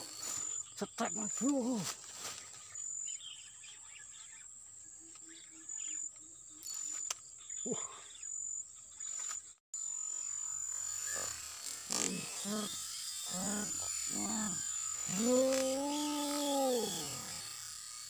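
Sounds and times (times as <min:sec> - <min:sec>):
insects trilling: 0:00.0 - 0:18.0
low pulsed calls: 0:10.4 - 0:17.7.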